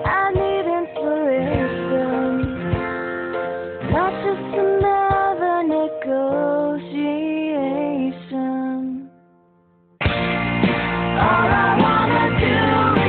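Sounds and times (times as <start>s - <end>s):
second background song: 10.0s - 13.0s.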